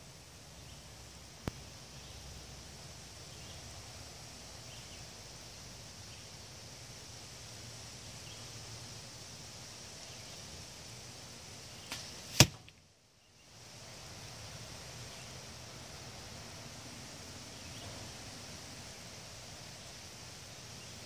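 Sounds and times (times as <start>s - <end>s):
faint outdoor hiss: 0.0s - 21.0s
arrow striking target: 11.9s - 12.8s.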